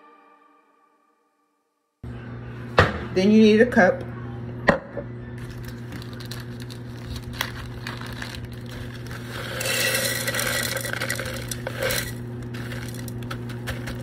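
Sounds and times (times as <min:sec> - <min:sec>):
plastic bag clicks and crinkles: 0:05.4 - 0:14.0.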